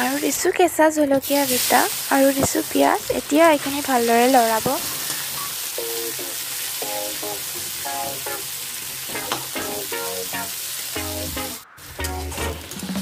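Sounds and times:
onions sizzling in hot oil: 0.0 - 0.6, 1.2 - 13.0
plucked music: 5.8 - 8.5, 9.1 - 13.0.

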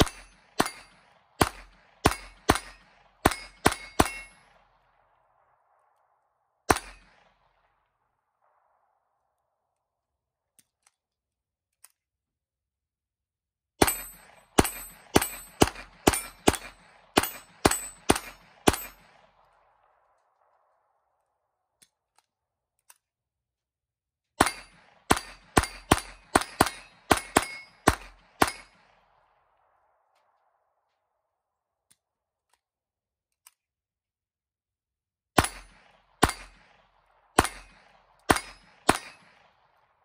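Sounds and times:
pistol shots: 0.0 - 9.1, 13.8 - 21.0, 24.4 - 30.6, 35.4 - 40.0
steel targets ringing: 2.0 - 4.5, 13.8 - 19.0, 38.3 - 39.2.

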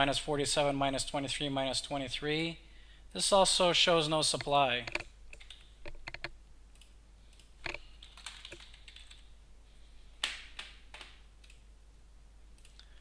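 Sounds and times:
keyboard keystrokes: 7.7 - 9.2.

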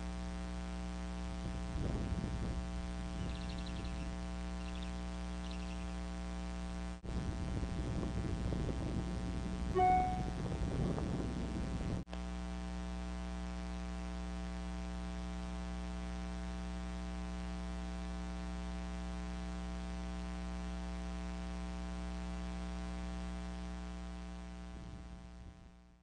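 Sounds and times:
electrical mains hum: 0.0 - 12.4.

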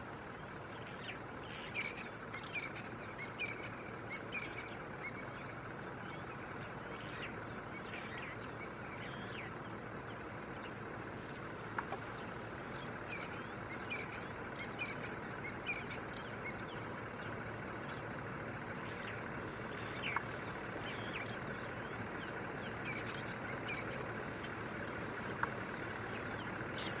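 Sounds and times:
birds chirping: 0.0 - 27.0
vehicle engines running: 0.0 - 27.0.

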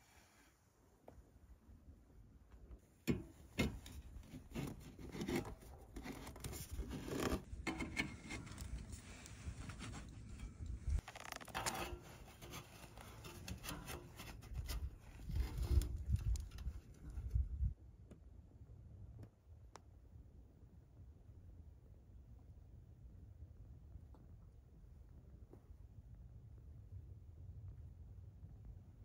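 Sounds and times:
rustling and clicking handling: 3.1 - 17.4.

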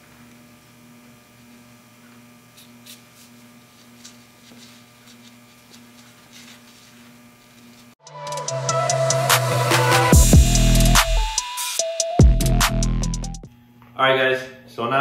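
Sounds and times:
low electrical hum: 0.0 - 8.0.

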